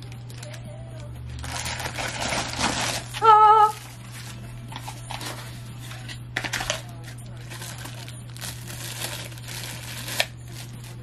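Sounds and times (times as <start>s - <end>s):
plastic bag crinkling and tearing: 1.4s - 5.3s, 6.4s - 11.0s.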